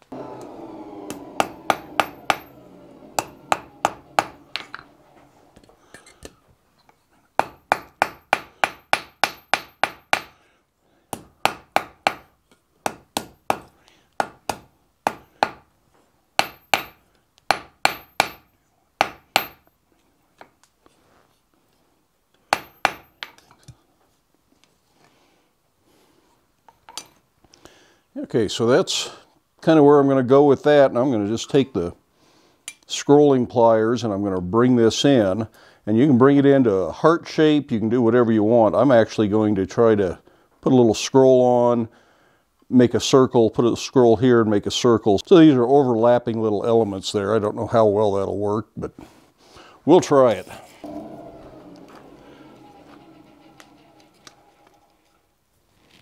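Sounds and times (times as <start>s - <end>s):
hammer striking iron on anvil: 1.1s - 2.5s, 3.2s - 4.8s, 7.4s - 10.4s, 11.2s - 12.3s, 12.9s - 15.6s, 16.4s - 19.7s, 22.5s - 23.4s.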